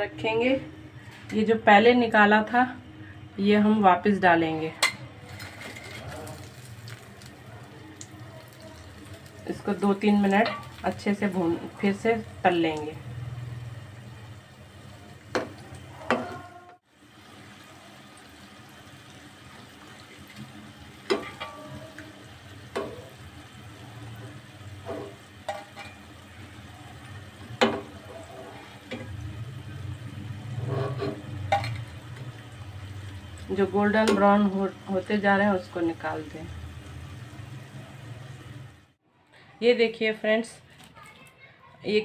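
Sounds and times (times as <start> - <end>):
metal spatula scraping pan: 4.8 - 6.4, 30.4 - 32.0
fritters sizzling in hot oil: 5.2 - 39.0.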